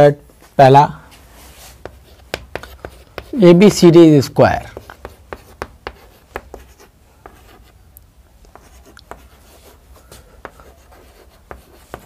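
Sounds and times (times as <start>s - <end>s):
chalk on chalkboard: 1.4s - 3.6s, 4.6s - 7.8s, 8.5s - 12.0s.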